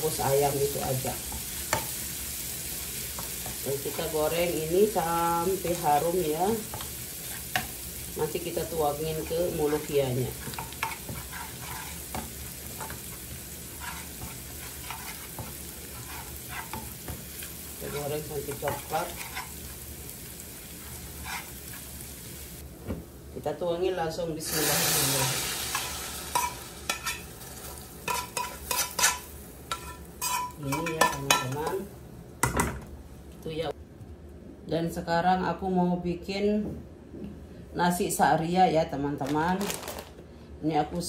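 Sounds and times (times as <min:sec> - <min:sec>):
garlic sizzling in oil: 0:00.0 - 0:22.6, 0:24.4 - 0:31.9
metal spoon scraping pan: 0:09.2 - 0:19.6, 0:20.9 - 0:21.8, 0:25.7 - 0:27.3, 0:28.0 - 0:31.7.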